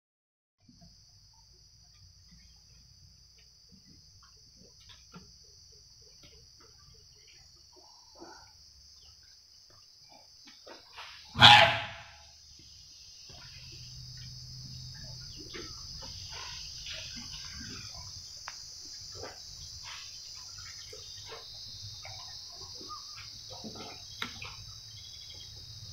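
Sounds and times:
crickets droning: 0.6 - 25.9
elephant trumpeting: 11.3 - 12.2.

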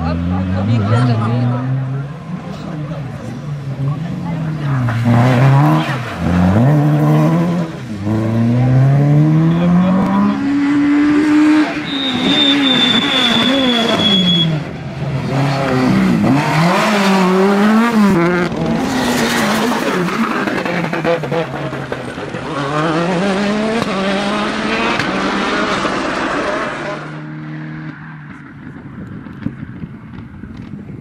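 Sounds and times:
rally car engines accelerating: 0.0 - 30.7
high thin squeal: 11.8 - 14.6.

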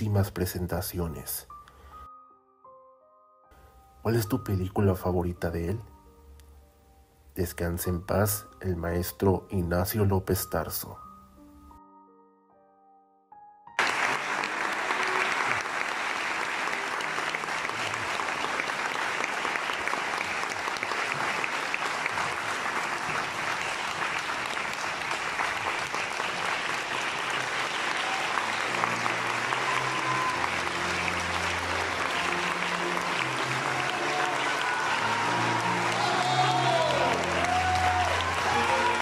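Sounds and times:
audience applauding: 13.8 - 39.0.

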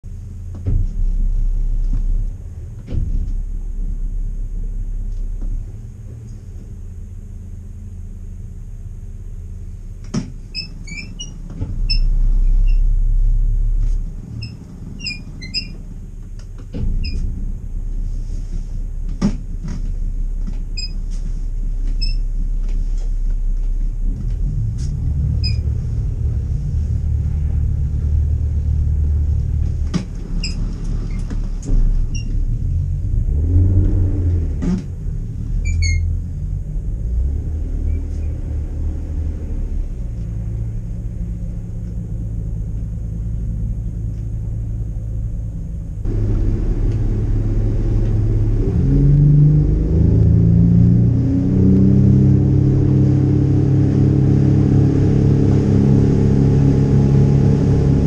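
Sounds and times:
boat engine low rumble: 0.0 - 58.0.

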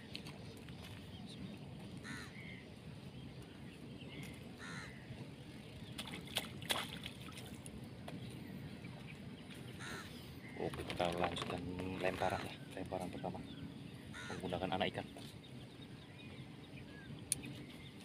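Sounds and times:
outdoor background noise: 0.0 - 18.0
bird harsh calls: 2.0 - 2.8, 4.0 - 5.2, 9.7 - 11.2, 11.8 - 16.0.

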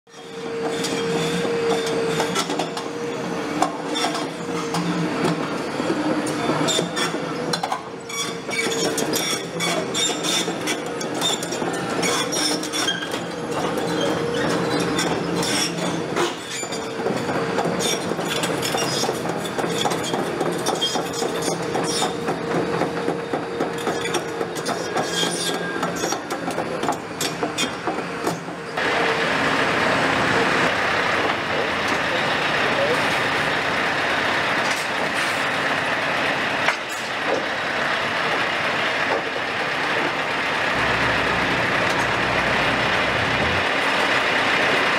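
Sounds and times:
excavator engine whine: 0.1 - 26.1, 26.7 - 44.9
steel tracks clanking and squeaking: 0.1 - 44.9
vehicle engine noise: 28.2 - 44.9.

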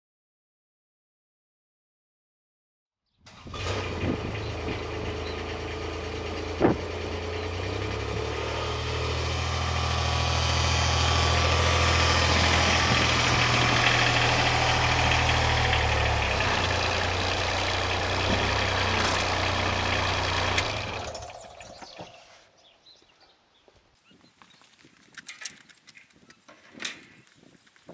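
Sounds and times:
diesel engine running: 3.2 - 22.2.

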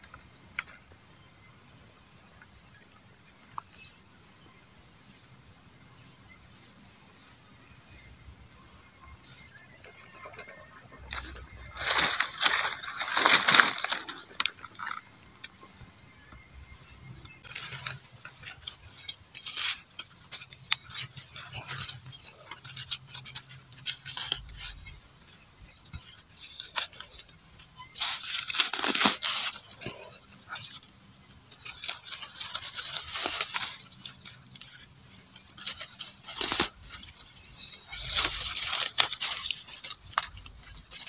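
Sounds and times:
insects buzzing: 0.0 - 41.0
digging in dry leaf litter: 9.2 - 16.3, 17.4 - 41.0.

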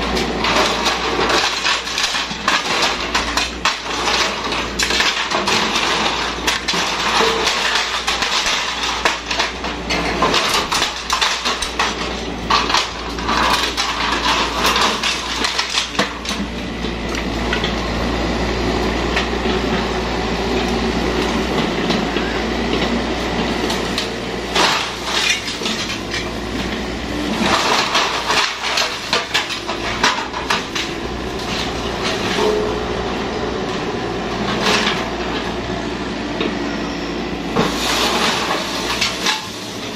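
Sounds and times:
diesel engine running under load: 0.0 - 39.9
metallic clanks and clatter: 0.2 - 16.5, 22.7 - 32.9.

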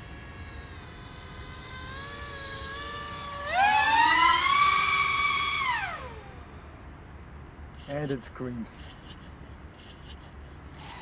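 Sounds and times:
quadcopter propellers whining: 0.0 - 6.8, 10.7 - 11.0.

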